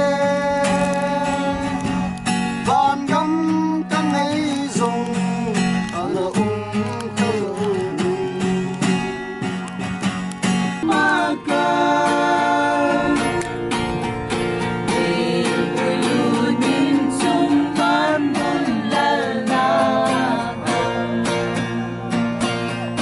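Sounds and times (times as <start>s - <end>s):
strummed acoustic guitars: 0.0s - 23.0s
group of voices singing: 10.8s - 22.3s.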